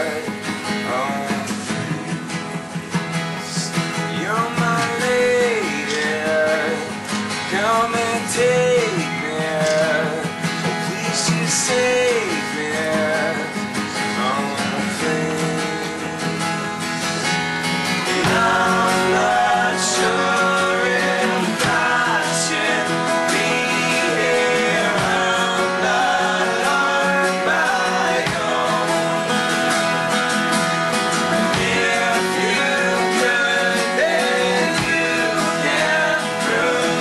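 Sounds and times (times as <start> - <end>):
men singing: 0.0 - 37.0
strummed acoustic guitars: 0.0 - 37.0.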